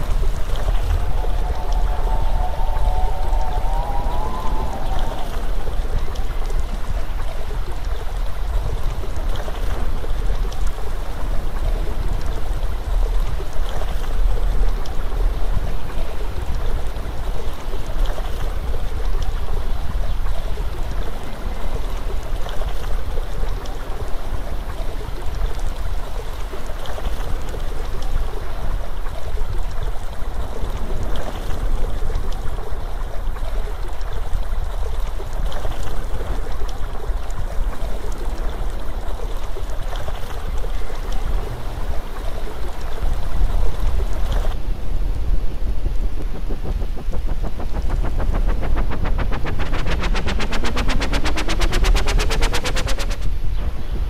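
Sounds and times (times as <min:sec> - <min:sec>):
deep rumble: 0:00.0 - 0:07.7, 0:40.9 - 0:54.0
rushing water: 0:00.0 - 0:54.0.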